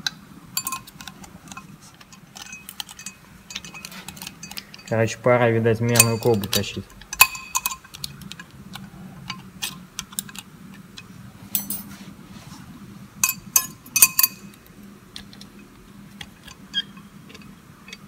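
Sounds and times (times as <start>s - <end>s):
metal discs clinking: 0.0s - 12.0s, 13.2s - 14.7s.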